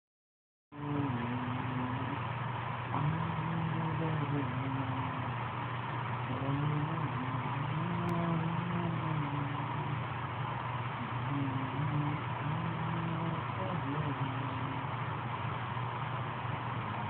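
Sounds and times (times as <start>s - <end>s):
man singing wordlessly: 0.8s - 2.2s, 2.9s - 5.4s, 6.3s - 10.0s, 11.0s - 14.9s.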